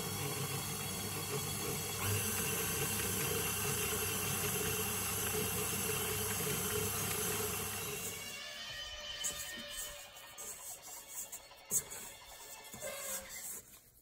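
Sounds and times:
stand mixer motor running: 0.0 - 8.4.

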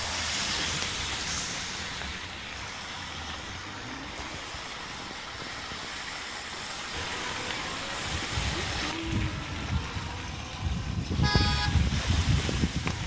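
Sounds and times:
car tyres on wet road: 0.0 - 13.0
heavy rain hissing: 0.0 - 13.0
low traffic rumble: 0.0 - 13.0.

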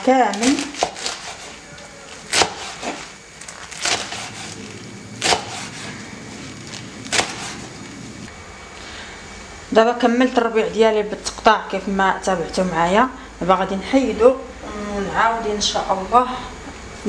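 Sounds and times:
knife chopping on wooden board: 0.4 - 1.6, 2.2 - 3.1, 3.8 - 4.6, 5.2 - 5.9, 7.1 - 7.6.

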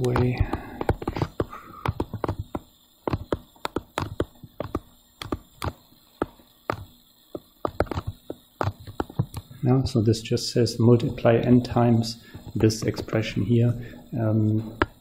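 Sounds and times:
stylus clicking on tablet screen: 0.0 - 9.4.

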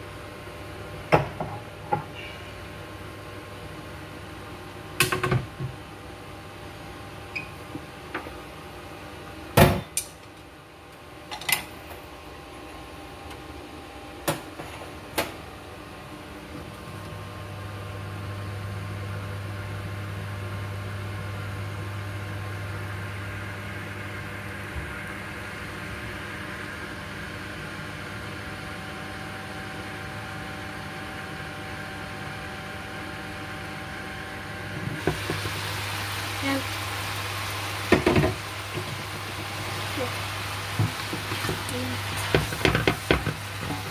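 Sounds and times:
vegetables sizzling in a wok: 33.6 - 43.9.

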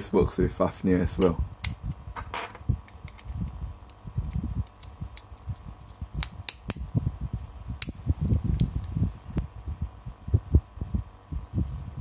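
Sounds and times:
sharp plastic and metal clicks: 3.1 - 6.8.

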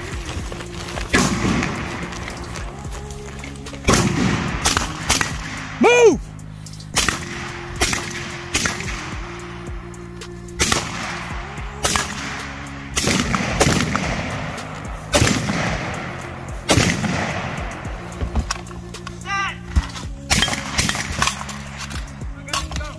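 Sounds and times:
background music with low notes: 0.0 - 22.9
rifle gunshots with echo: 3.9 - 5.8, 6.9 - 9.5, 10.6 - 18.0, 20.3 - 21.9.

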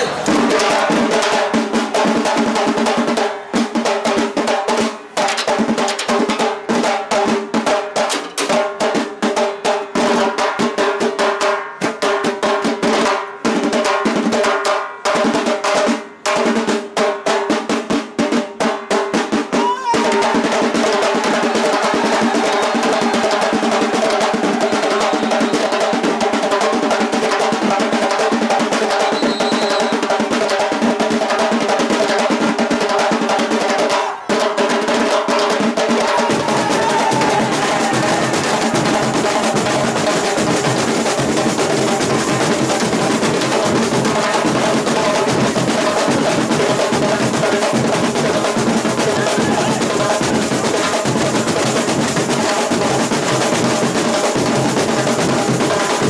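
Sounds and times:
snare drum: 0.0 - 56.0
bass drums: 35.9 - 56.0.

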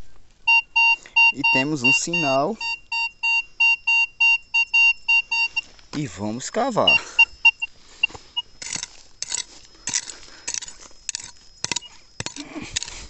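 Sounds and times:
metal detector beeps: 0.5 - 5.7, 6.8 - 12.9
metal hoe digging stony soil: 8.6 - 13.0.

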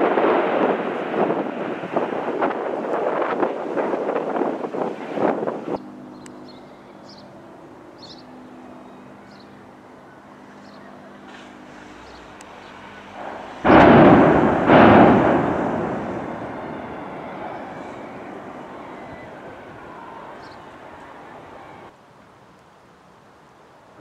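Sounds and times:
demolition blasts: 0.0 - 5.8, 11.5 - 21.9.

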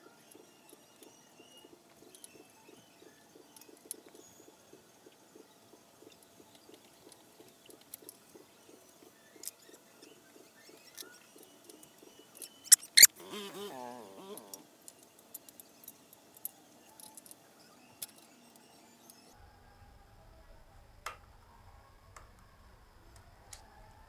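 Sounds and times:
short wavering squeak: 12.7 - 13.1.

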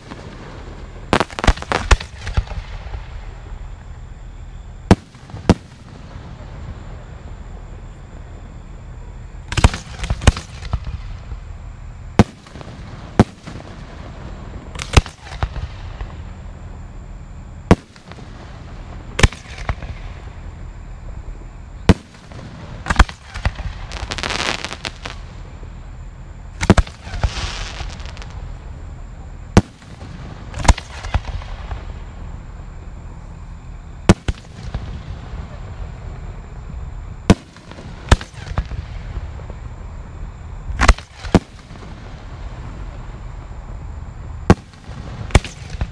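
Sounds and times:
firework bangs: 0.0 - 3.6, 4.8 - 7.6, 9.5 - 11.4, 12.1 - 16.3, 17.6 - 20.4, 21.8 - 25.6, 26.5 - 28.4, 29.5 - 32.1, 34.0 - 36.2, 37.2 - 39.7, 40.7 - 43.2, 44.4 - 45.9
firework hiss: 0.0 - 3.9, 12.2 - 16.3, 21.8 - 25.7, 26.5 - 28.7.

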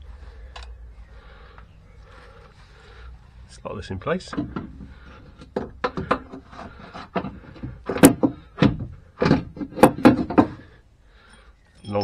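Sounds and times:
metal knocks and clunks: 4.2 - 10.8.

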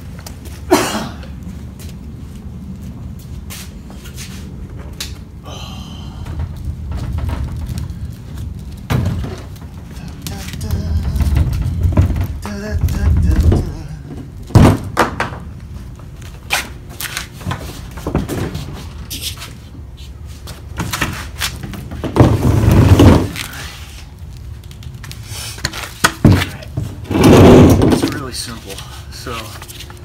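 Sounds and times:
hollow plastic knocks on concrete: 14.5 - 15.5
rough scraping: 25.1 - 30.0.

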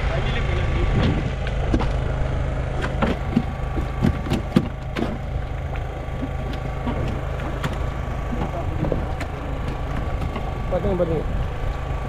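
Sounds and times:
boat engine humming: 0.0 - 12.0
sharp clicks and knocks: 2.8 - 10.6.

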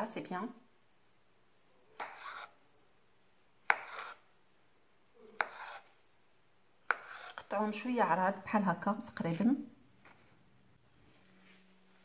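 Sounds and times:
knife slicing on plastic board: 2.0 - 2.6, 3.7 - 4.2, 5.4 - 5.9, 6.9 - 7.7.

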